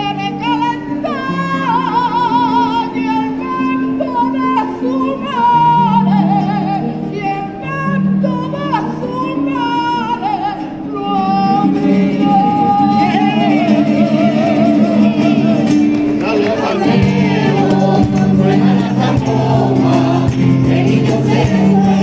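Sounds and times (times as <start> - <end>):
guitars playing: 0.0 - 22.0
choir singing: 11.0 - 22.0.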